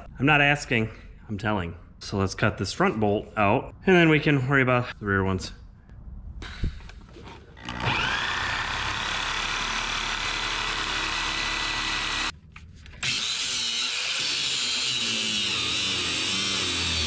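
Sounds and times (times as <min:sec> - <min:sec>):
angle grinder cutting bolt: 0:07.6 - 0:12.3, 0:13.0 - 0:17.0.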